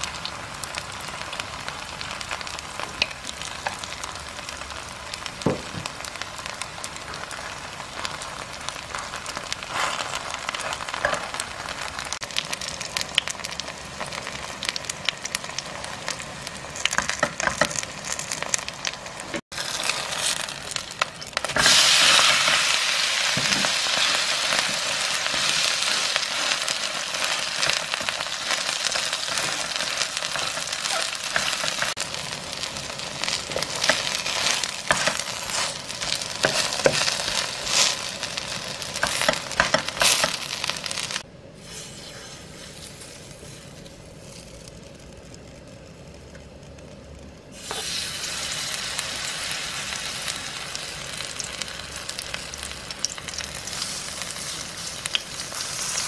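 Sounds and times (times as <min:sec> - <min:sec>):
pancake sizzling in oil: 0:00.0 - 0:46.0, 0:46.7 - 0:56.0
wooden spatula scraping pan: 0:41.6 - 0:43.9.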